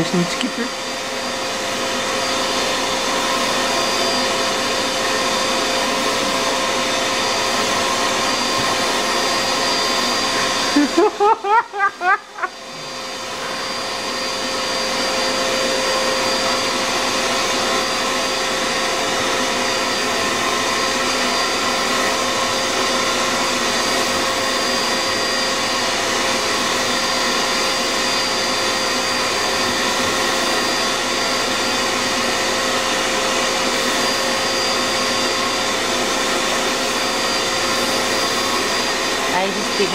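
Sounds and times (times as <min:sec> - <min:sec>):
vacuum cleaner running: 0:00.0 - 0:39.9.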